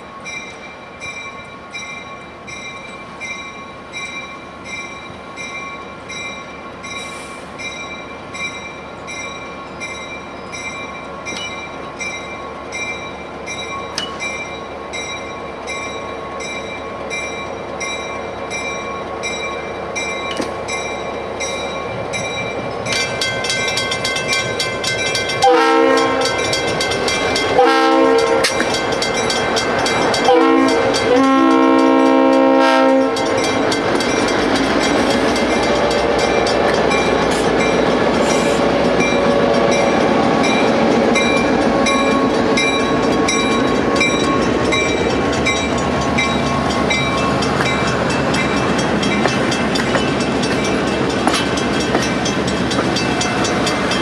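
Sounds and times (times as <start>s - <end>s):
train wheels clattering on rails: 0.0s - 54.0s
diesel locomotive engine running: 11.3s - 54.0s
locomotive air horn: 25.4s - 26.3s, 27.6s - 28.6s, 30.2s - 33.3s.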